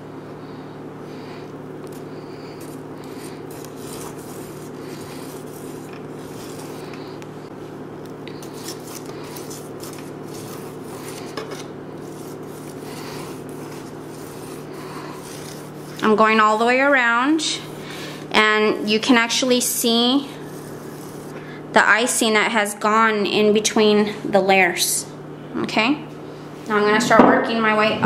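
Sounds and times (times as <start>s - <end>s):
spatula rubbing buttercream: 1.9s - 7.2s, 8.3s - 21.4s.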